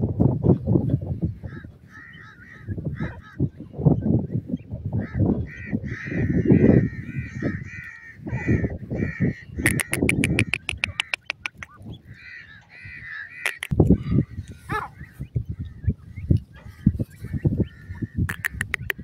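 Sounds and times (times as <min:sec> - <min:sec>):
francolins calling harshly: 0:05.0 - 0:19.0
sharp ticking calls: 0:09.1 - 0:14.7, 0:17.5 - 0:19.0.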